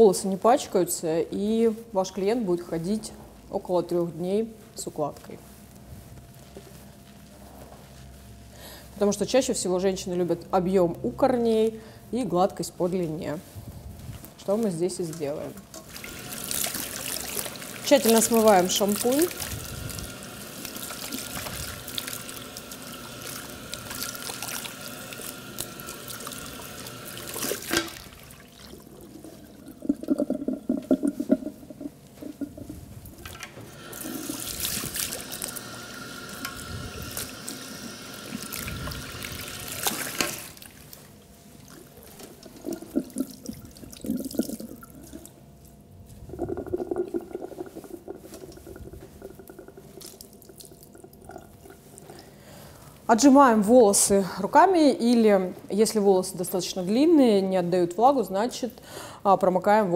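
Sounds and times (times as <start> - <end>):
hands squeezing wet hair: 15.0 - 53.0
shower sprayer spraying water on hair: 15.9 - 28.6, 33.7 - 41.0.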